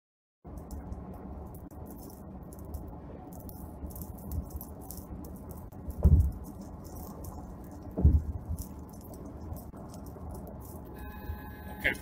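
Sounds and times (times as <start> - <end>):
road noise: 0.4 - 12.0
heavy thump: 6.0 - 6.4, 8.0 - 8.4.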